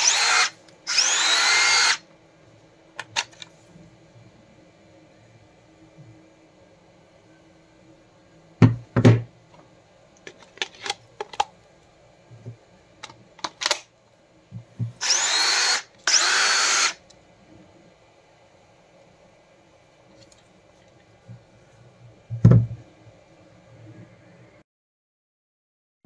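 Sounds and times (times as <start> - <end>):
cordless drill motor whine: 0.0 - 2.0, 15.0 - 17.0.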